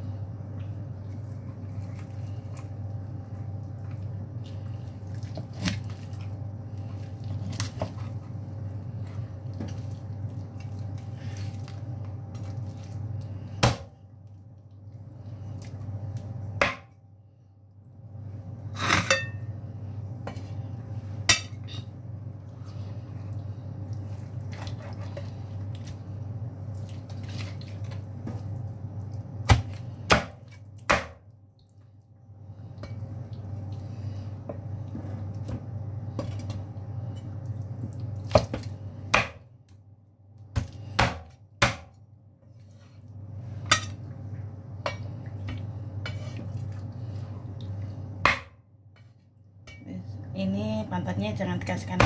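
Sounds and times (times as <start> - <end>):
knife chopping on a board: 29.5 - 31.2, 40.5 - 41.9.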